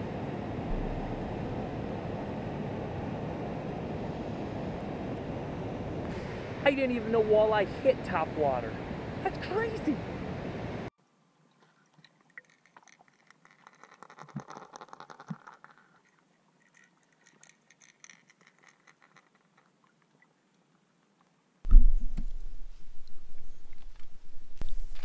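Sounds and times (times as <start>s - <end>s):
loud low rumbling: 0.0s - 6.7s
muffled underwater clicks: 12.0s - 16.0s.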